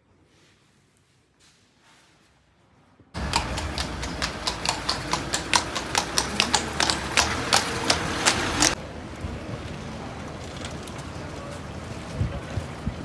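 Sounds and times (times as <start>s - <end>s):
horse hooves clip-clopping: 3.2s - 8.8s.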